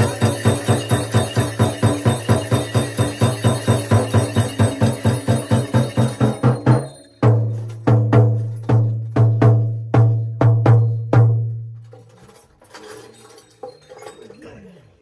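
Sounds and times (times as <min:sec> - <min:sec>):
frame drum beaten: 0:00.0 - 0:11.8
faint clinks and rustling: 0:11.6 - 0:15.0.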